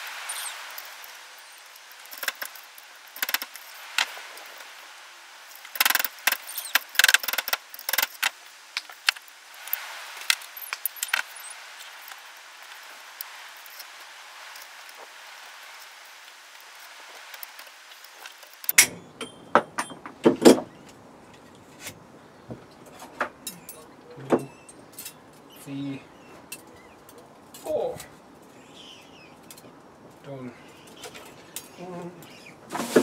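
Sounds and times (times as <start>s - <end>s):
metal parts and tools clinking: 1.6s - 3.7s.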